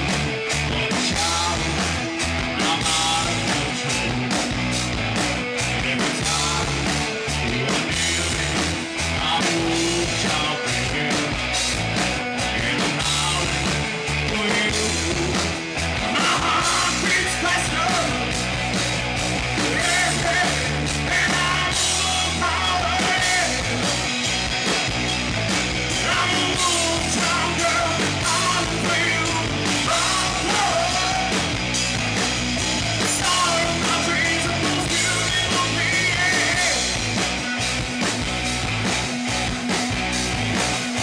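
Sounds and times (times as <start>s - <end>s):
bass guitar: 0.0s - 41.0s
drums: 0.0s - 41.0s
electric guitars: 0.0s - 41.0s
person singing: 0.6s - 4.4s, 5.6s - 11.5s, 12.4s - 18.4s, 19.5s - 24.0s, 25.9s - 31.6s, 32.4s - 37.6s.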